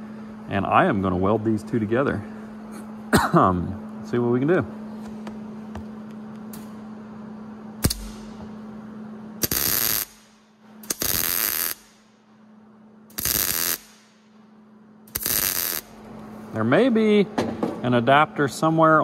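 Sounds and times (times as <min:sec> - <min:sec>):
welder arc bursts: 0:07.8 - 0:08.3, 0:09.4 - 0:12.1, 0:13.1 - 0:14.2, 0:15.1 - 0:16.0.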